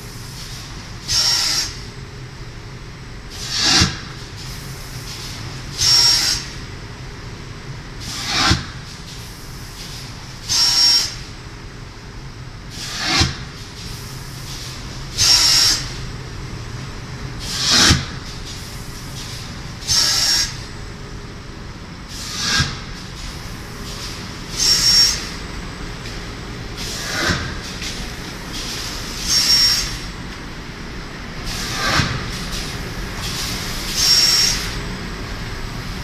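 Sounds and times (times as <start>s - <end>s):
loud air hisses: 22.1s - 25.4s, 26.8s - 30.1s, 31.4s - 34.8s.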